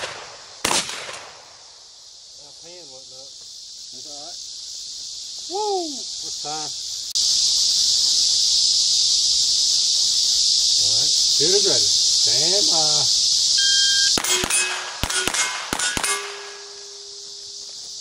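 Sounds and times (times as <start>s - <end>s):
pistol shots: 0.0s - 1.5s, 14.2s - 17.2s
insect chorus: 0.0s - 18.0s
steel targets clanging: 14.2s - 17.4s.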